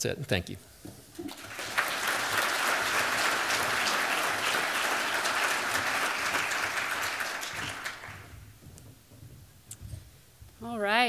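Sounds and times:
audience applauding: 1.2s - 8.4s.

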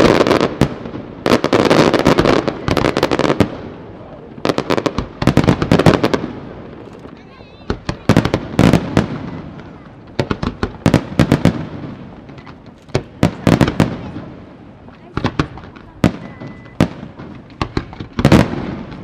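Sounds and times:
firework shells bursting: 4.4s - 19.0s.

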